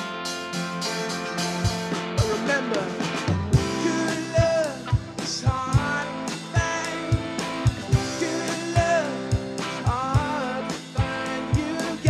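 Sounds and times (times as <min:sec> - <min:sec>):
bending lead guitar notes: 0:00.0 - 0:12.0
drum kit beat: 0:00.0 - 0:12.0
live rock band playing: 0:00.0 - 0:12.0.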